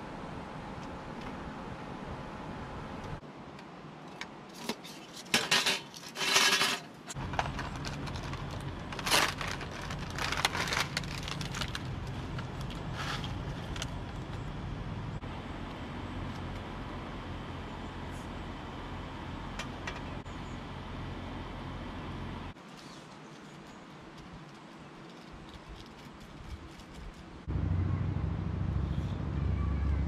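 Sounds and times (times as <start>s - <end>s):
steady low rumble: 7.1s - 22.6s, 27.4s - 30.0s.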